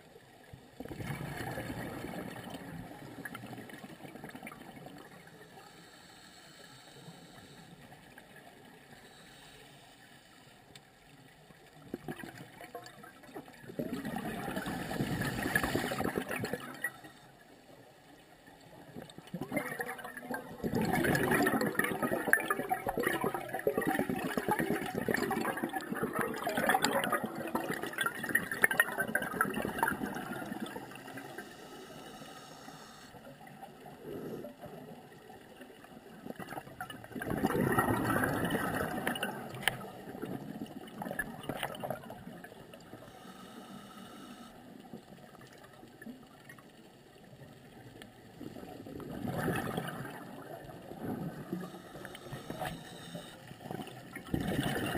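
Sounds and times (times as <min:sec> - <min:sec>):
low hiss: 0:04.8 - 0:11.8, 0:30.1 - 0:36.2, 0:42.5 - 0:45.4
air bubbling underwater: 0:20.6 - 0:30.8, 0:37.1 - 0:42.1, 0:49.0 - 0:50.4, 0:53.7 - 0:54.9.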